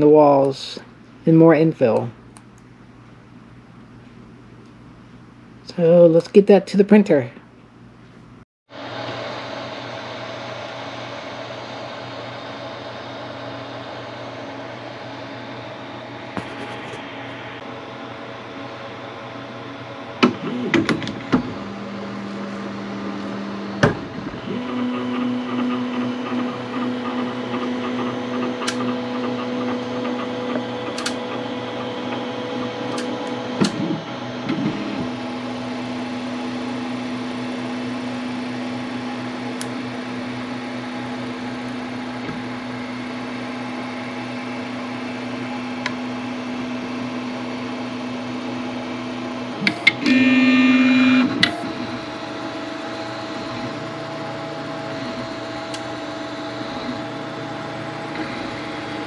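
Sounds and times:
cooling fans humming: 0.0 - 59.0
stepper motors humming: 20.2 - 36.6, 49.5 - 59.0.

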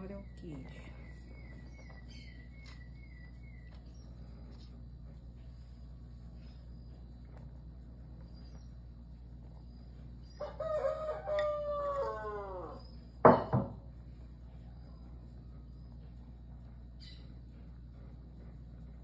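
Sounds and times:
rooster crowing: 10.3 - 13.0.

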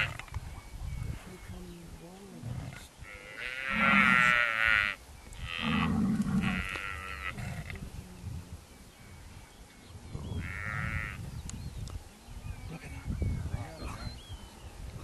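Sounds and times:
buffalo calf bellowing: 3.0 - 7.5.

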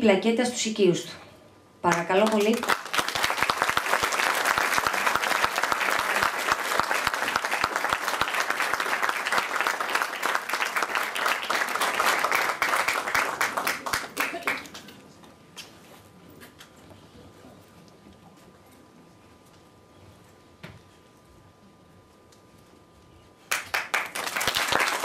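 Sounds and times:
audience applauding: 1.9 - 14.9, 23.5 - 25.0.

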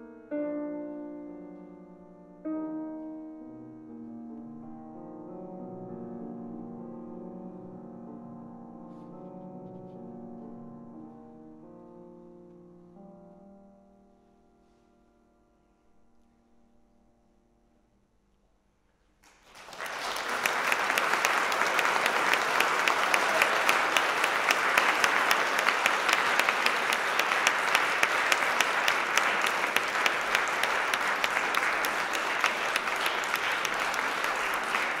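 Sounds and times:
audience applause: 19.2 - 35.0.

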